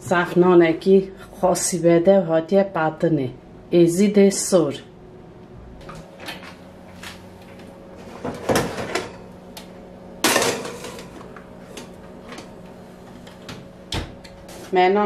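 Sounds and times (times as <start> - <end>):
metal baking trays clattering: 8.0 - 9.2, 10.2 - 11.2.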